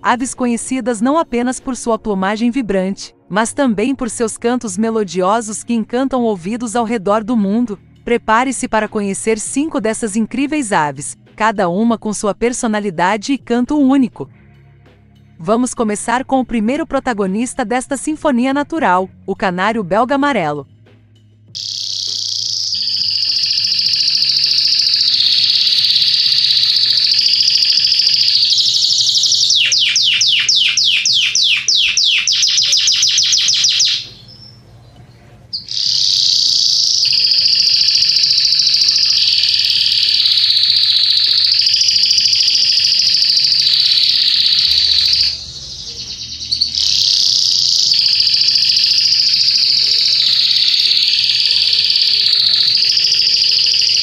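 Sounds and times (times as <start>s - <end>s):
canary singing trills: 21.6s - 54.0s.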